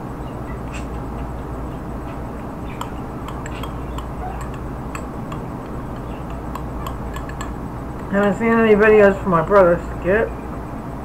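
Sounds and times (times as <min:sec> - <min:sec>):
steady low hum: 0:00.0 - 0:11.0
metal spoon scraping a cup: 0:02.8 - 0:08.4.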